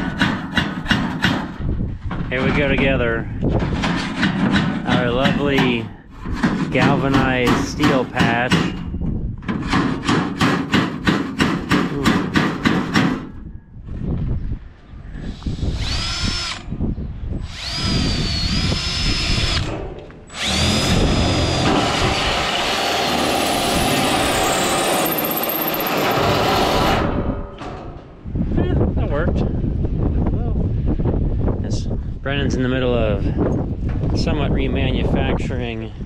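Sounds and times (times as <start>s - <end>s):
power drill whining: 15.3s - 16.7s, 17.4s - 27.0s.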